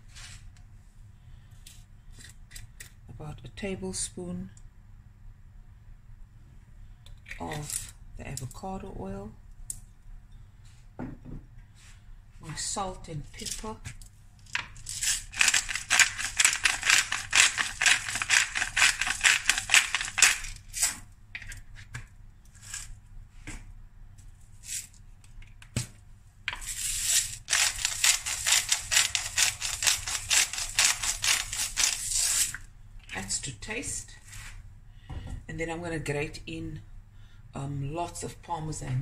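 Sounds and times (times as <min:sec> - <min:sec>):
pepper grinder clicking: 0:14.7 - 0:21.0, 0:26.6 - 0:32.6.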